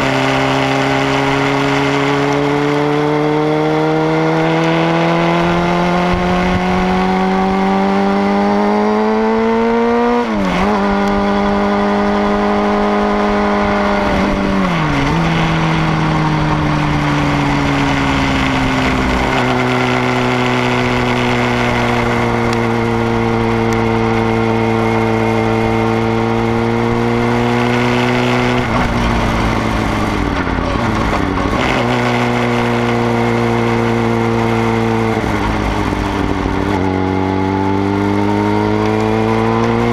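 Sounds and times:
motorcycle engine accelerating: 0:00.0 - 0:39.9
wind rumble on microphone: 0:05.0 - 0:08.6, 0:10.3 - 0:32.6.

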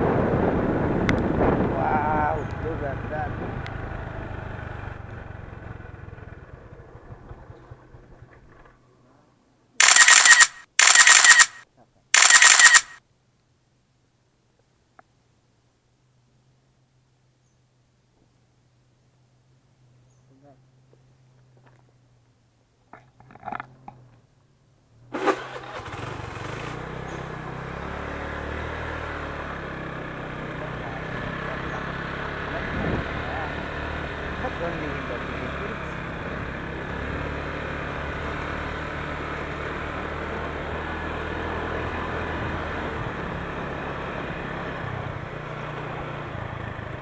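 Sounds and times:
motorcycle engine running: 0:01.8 - 0:08.8, 0:25.8 - 0:47.0
harsh buzzing bursts: 0:09.8 - 0:11.6, 0:12.2 - 0:13.0
small engine starting: 0:09.8 - 0:11.6, 0:12.2 - 0:13.0, 0:25.1 - 0:27.0.

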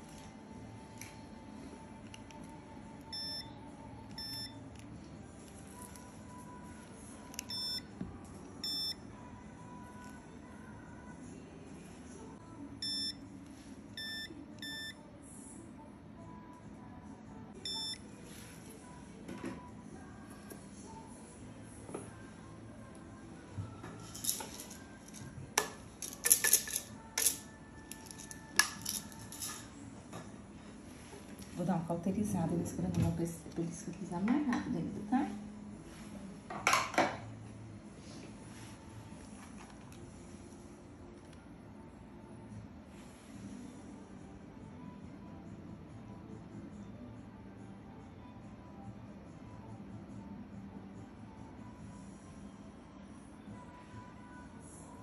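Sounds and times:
short electronic beeps: 0:07.5 - 0:07.8, 0:08.6 - 0:09.0
metal instruments clinking: 0:24.0 - 0:29.8.

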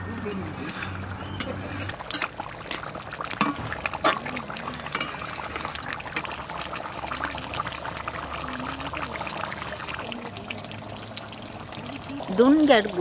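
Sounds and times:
curry simmering and bubbling: 0:00.0 - 0:13.0
metal spatula stirring: 0:00.1 - 0:06.4.

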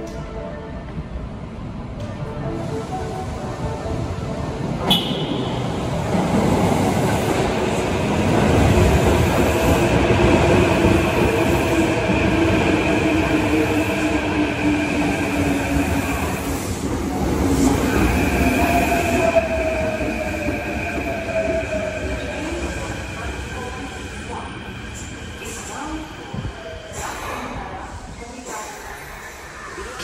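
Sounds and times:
train horn beep: 0:04.8 - 0:05.8.

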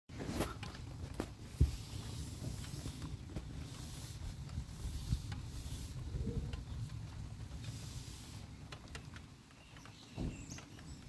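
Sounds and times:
rain hiss: 0:01.5 - 0:09.5.

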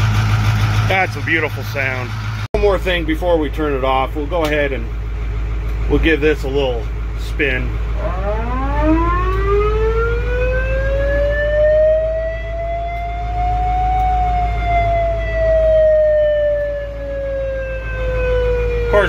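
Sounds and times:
diesel engine idling: 0:00.0 - 0:19.0
mechanical siren wailing: 0:07.9 - 0:19.0.

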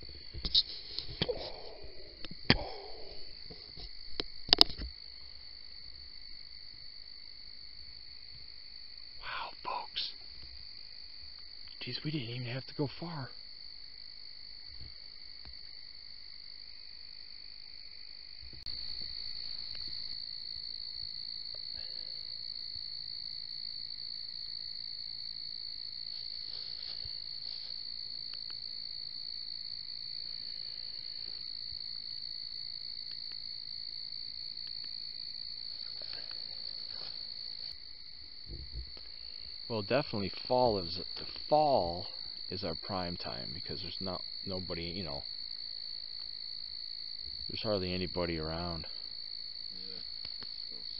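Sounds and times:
faint clicks and rustles: 0:00.0 - 0:01.3
crickets and insects ringing: 0:00.0 - 0:50.9.

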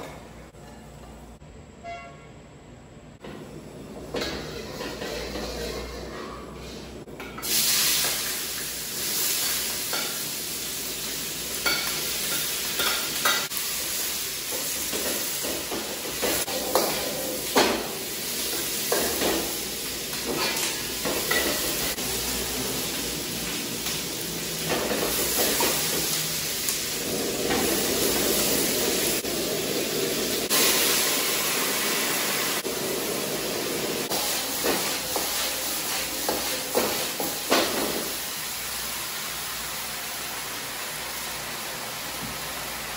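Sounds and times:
vegetables sizzling in oil: 0:07.4 - 0:42.9.

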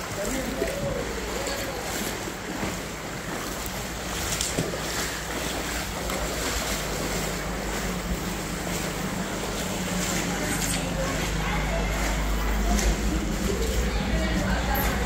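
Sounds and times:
floodwater sloshing: 0:00.0 - 0:15.0.

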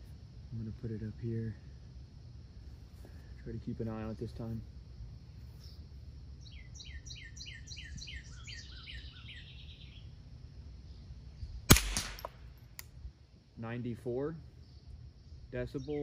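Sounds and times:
bird whistling and trilling: 0:06.4 - 0:10.0
rifle shot: 0:11.7 - 0:12.6.

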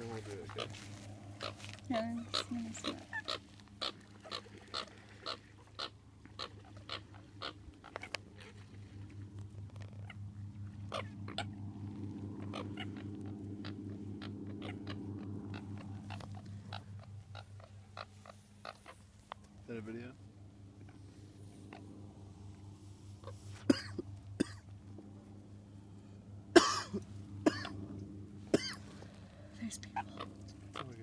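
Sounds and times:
low pulsing hum: 0:00.0 - 0:31.0
coots making sharp clicking calls: 0:00.3 - 0:11.5, 0:12.4 - 0:19.6, 0:29.8 - 0:31.0.

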